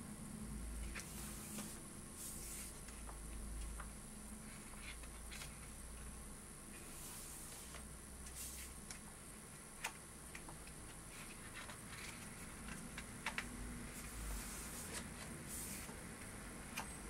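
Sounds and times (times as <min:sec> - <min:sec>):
faint steady hiss: 0:00.0 - 0:17.0
book pages rustling: 0:00.8 - 0:03.9, 0:04.5 - 0:05.8, 0:09.8 - 0:16.0.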